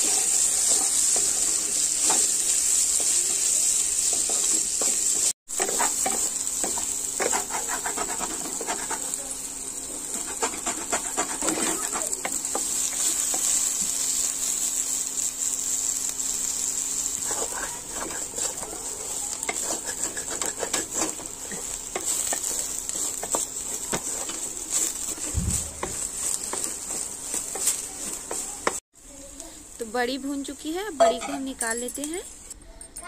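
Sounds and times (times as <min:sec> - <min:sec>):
wooden spatula clicking and scraping: 0:00.0 - 0:09.2, 0:10.0 - 0:13.6, 0:17.2 - 0:28.8
food sizzling in hot oil: 0:00.0 - 0:32.2
low thump: 0:25.4 - 0:26.0.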